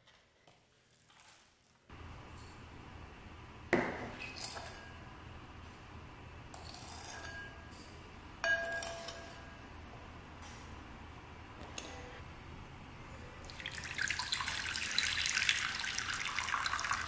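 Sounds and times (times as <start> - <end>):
glass bowl ringing clink: 6.7 - 7.7, 8.4 - 9.6
spoon clinking on glass bowl: 8.4 - 9.6.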